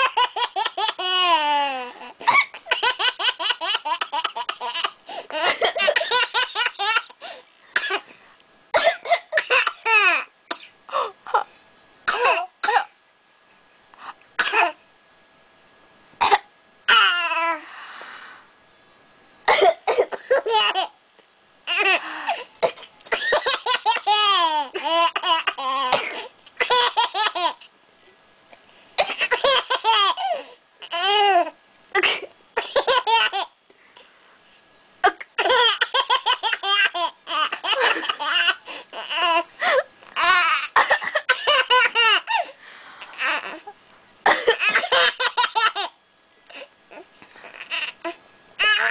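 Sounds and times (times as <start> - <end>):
person coughing: 8.8 - 9.8, 19.5 - 20.5, 25.9 - 26.3, 32.0 - 32.8, 44.2 - 45.2.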